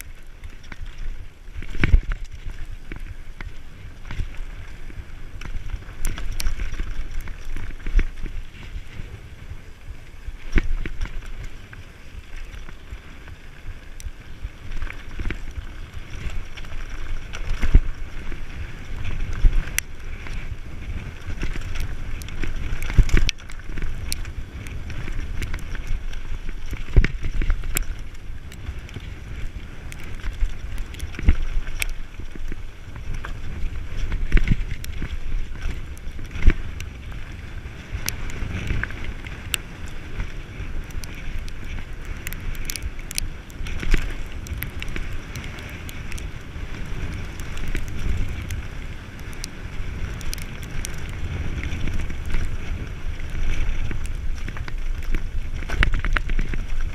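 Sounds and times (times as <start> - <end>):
bike tyres crunching on gravel: 0.0 - 56.9
wind buffeting microphone: 0.0 - 56.9
bike knocks and rattles: 14.7 - 29.4.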